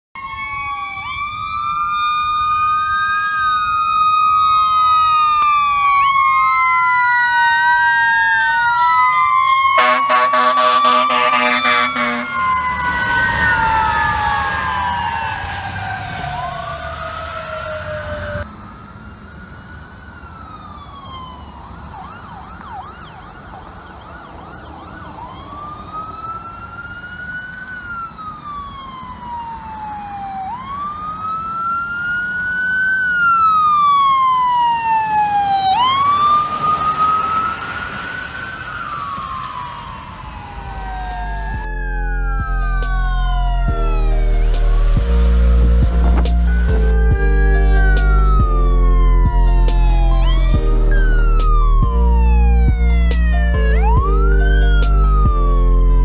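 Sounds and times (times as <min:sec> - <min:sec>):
emergency sirens wailing: 0:00.1 - 0:56.0
loud blaring horn: 0:09.7 - 0:13.9.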